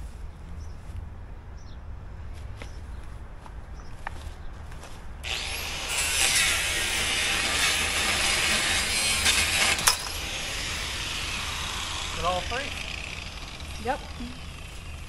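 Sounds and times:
power tool cutting: 5.2s - 15.0s.

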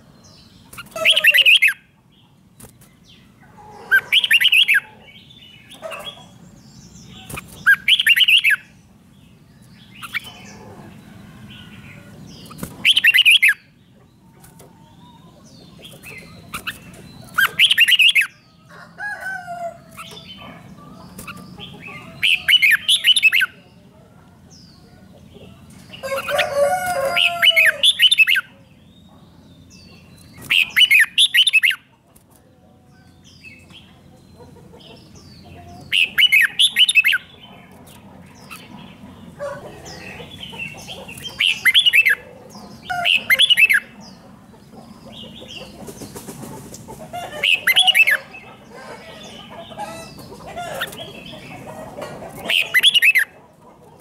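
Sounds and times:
bird whistling song: 7.6s - 8.7s, 12.8s - 13.6s, 30.5s - 31.8s.

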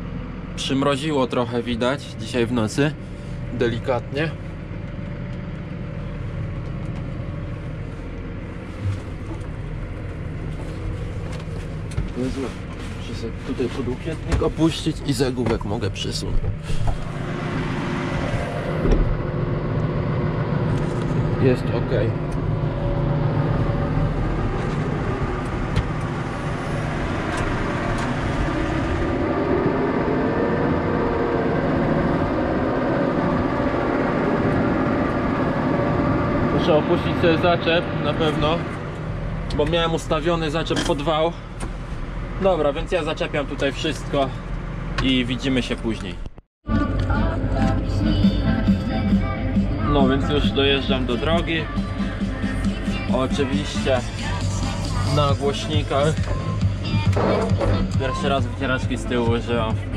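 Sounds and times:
tractor diesel engine running: 0.0s - 59.9s
brief low thump: 18.8s - 19.2s.

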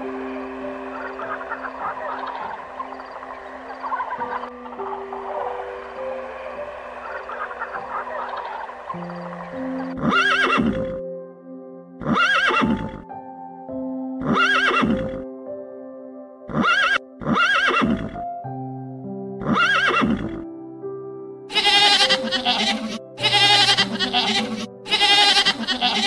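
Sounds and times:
calm background music: 0.0s - 26.0s
animal calling: 0.8s - 11.0s, 12.0s - 13.0s, 16.5s - 18.2s, 21.5s - 26.0s.

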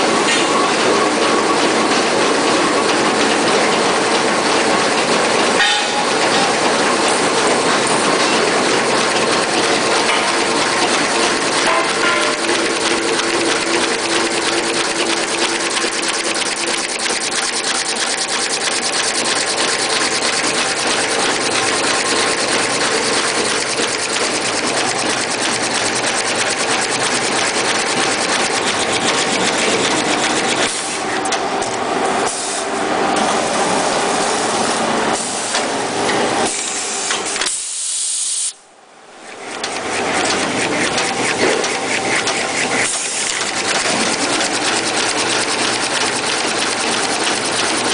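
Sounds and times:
machine rollers clattering: 0.0s - 32.3s, 39.1s - 47.9s.

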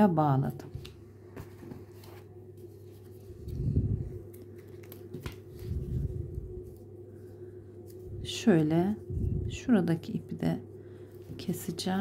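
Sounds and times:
steady low hum: 0.0s - 12.0s
hands handling yarn: 0.8s - 9.1s.

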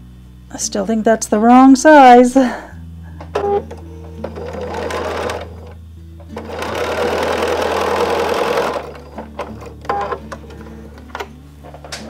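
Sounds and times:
sewing machine stitching: 4.2s - 10.3s.

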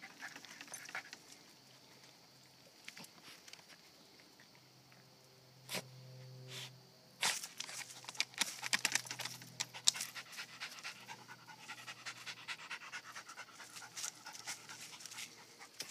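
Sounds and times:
dog panting: 9.6s - 15.9s.

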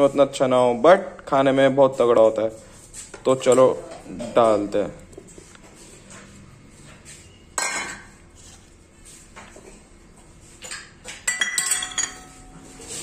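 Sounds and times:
metal bowls clinking on a pot: 7.6s - 8.2s, 10.6s - 12.6s.

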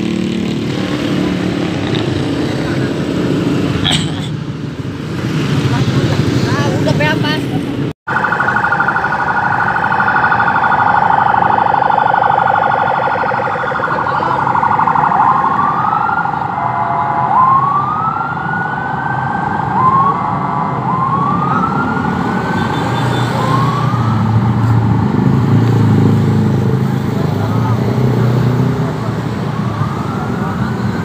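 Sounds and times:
police siren: 8.1s - 31.0s.

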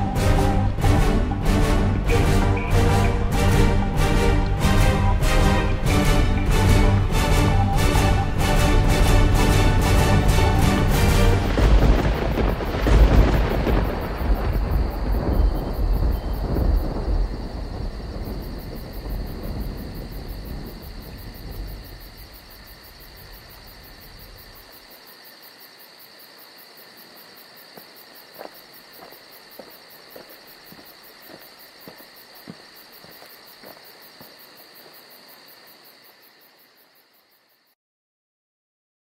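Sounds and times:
insects chirping: 0.0s - 37.8s.

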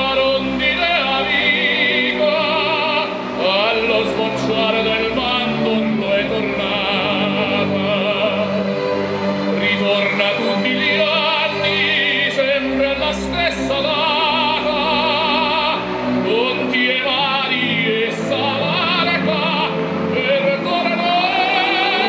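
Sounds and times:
music: 0.0s - 22.0s
operatic singing with vibrato: 0.0s - 22.0s.

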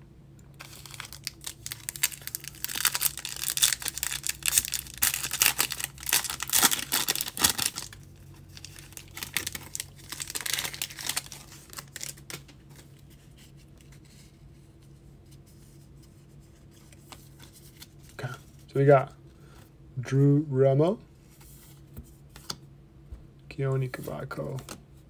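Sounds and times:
foil wrapper crinkling and tearing: 0.6s - 12.9s.

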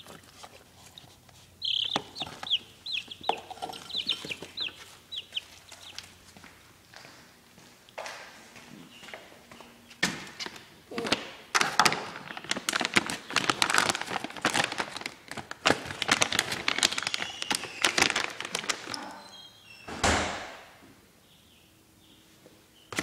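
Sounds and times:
plastic rustling and knocking: 1.8s - 5.0s, 10.0s - 19.0s.

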